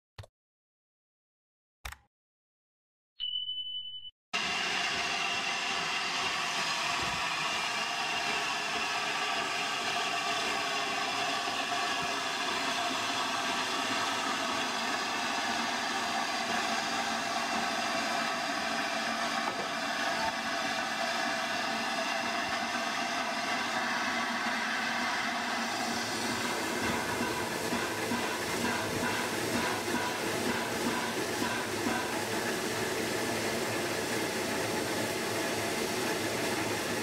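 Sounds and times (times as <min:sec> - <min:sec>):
short high beep: 0:03.2 - 0:04.1
train running with engine hum: 0:05.0 - 0:37.0.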